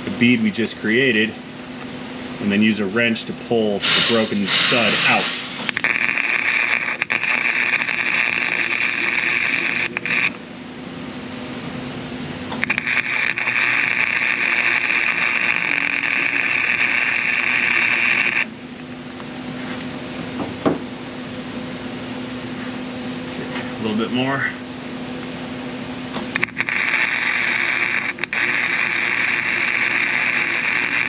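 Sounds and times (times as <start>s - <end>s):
steady low hum: 0.0s - 31.0s
welder arc buzzing: 3.9s - 10.8s, 12.5s - 18.8s, 26.2s - 31.0s.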